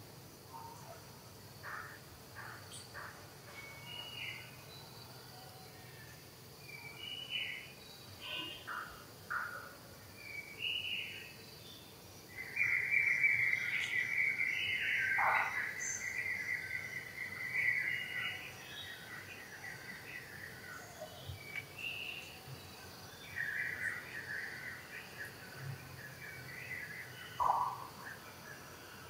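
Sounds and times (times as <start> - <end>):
faint high insect hum: 0.0 - 29.0
bird chirps: 12.4 - 20.3, 26.2 - 28.2.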